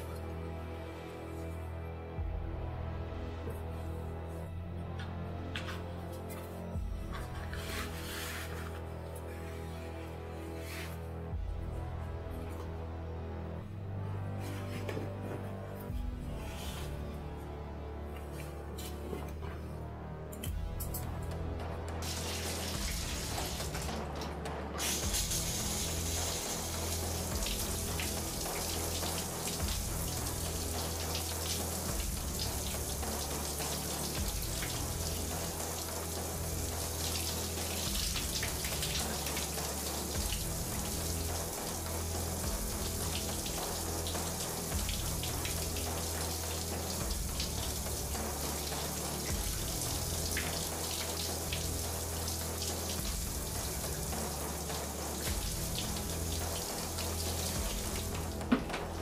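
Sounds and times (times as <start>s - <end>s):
low bass film music: 0.0s - 59.0s
steady hiss: 24.8s - 58.4s.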